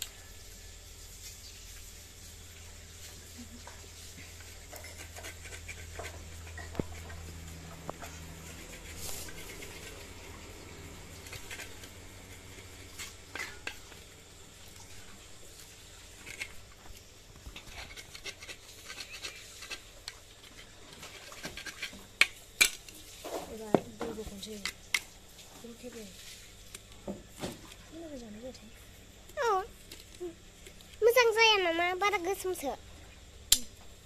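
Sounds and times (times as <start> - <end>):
knife scraping coconut shell: 4.3 - 14.0, 17.5 - 23.1.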